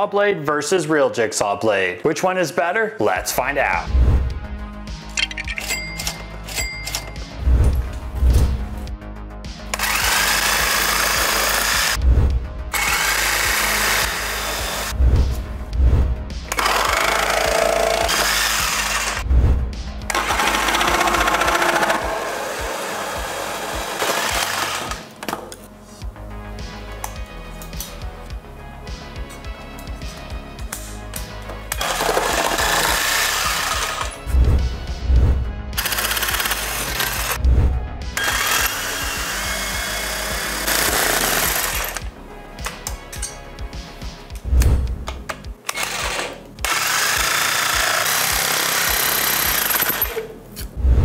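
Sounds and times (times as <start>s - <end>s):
background music with a beat: 3.8s - 17.5s, 18.4s - 25.2s, 25.8s - 50.0s
electric jigsaw running: 9.7s - 12.0s, 12.7s - 14.9s, 16.5s - 19.2s, 20.1s - 25.1s, 31.8s - 34.1s, 35.8s - 37.4s, 38.2s - 42.0s, 45.7s - 50.1s
music with heavy bass beats: 32.6s - 43.0s.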